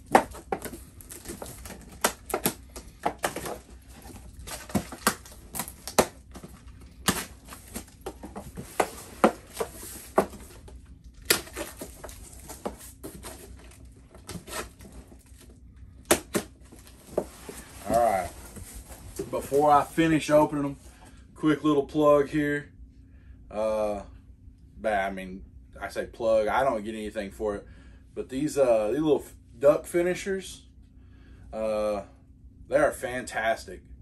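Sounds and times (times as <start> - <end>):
cardboard flaps scraping: 0.0 - 15.5, 16.1 - 20.2
packing tape ripping: 11.2 - 13.3.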